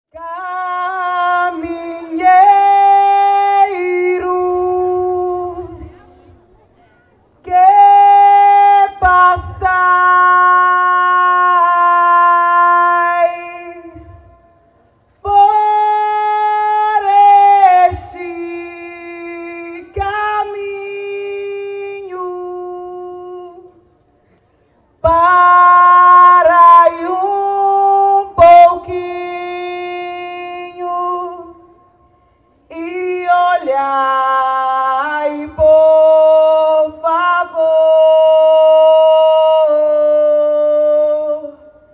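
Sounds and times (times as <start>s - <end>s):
person singing unaccompanied chant: 0.1s - 6.5s, 7.4s - 23.9s, 25.0s - 41.9s.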